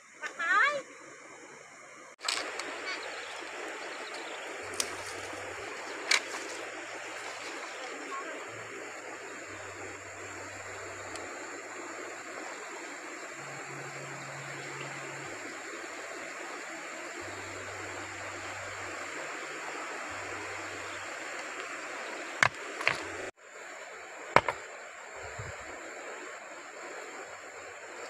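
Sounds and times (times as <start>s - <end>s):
river water rushing over stones: 2.2s - 28.0s
stone knocking on stone: 22.4s - 23.1s, 24.4s - 24.6s.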